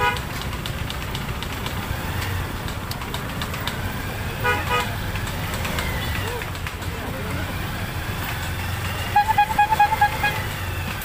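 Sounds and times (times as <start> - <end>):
engine running: 0.0 - 11.0
motorcycle horn beeps: 9.1 - 10.4.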